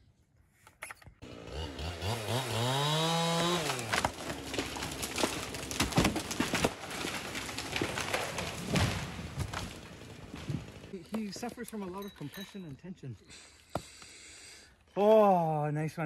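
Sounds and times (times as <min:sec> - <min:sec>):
chainsaw revving and cutting: 0:01.2 - 0:11.0
tree trunk cracking: 0:01.5 - 0:11.7.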